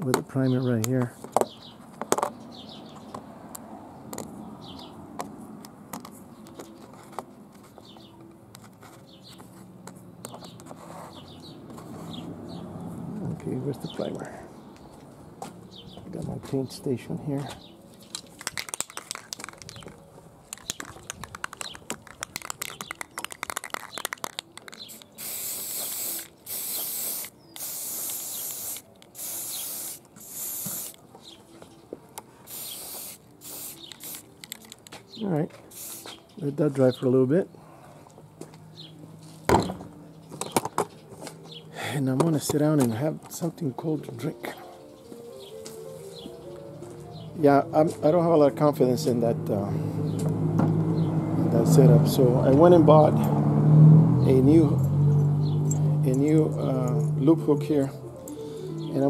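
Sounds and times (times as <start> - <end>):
metal washers clicking on cardboard: 18.0 - 25.2
aerosol can rattling: 18.0 - 31.0, 32.5 - 34.9
spray can hissing: 20.6 - 31.0, 32.5 - 34.9, 35.7 - 36.2.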